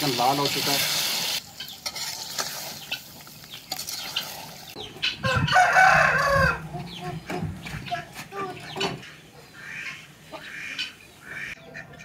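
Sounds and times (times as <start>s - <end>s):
rooster crowing: 5.2s - 6.8s.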